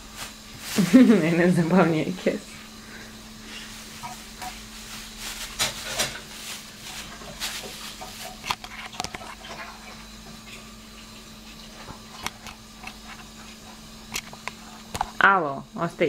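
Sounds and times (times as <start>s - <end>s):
steady low hum: 0.0s - 16.0s
plastic bag crinkling: 0.2s - 1.8s, 3.4s - 9.8s.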